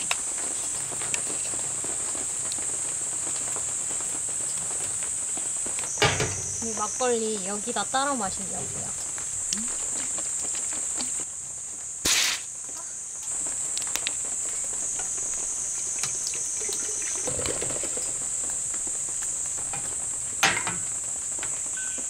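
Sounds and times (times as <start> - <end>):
insects chirring: 0.0 - 22.0
short loud hiss: 12.0 - 12.6
liquid pouring into a kettle: 15.3 - 18.7.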